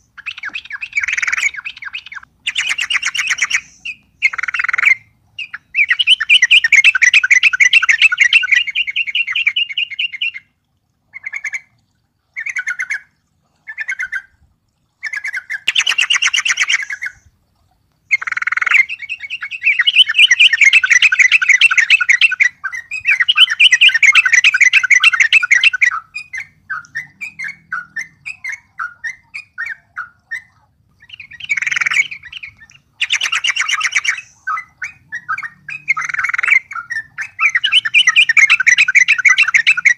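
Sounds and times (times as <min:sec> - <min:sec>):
bulbul singing rapid chattering: 0:00.1 - 0:10.3, 0:31.0 - 0:39.9.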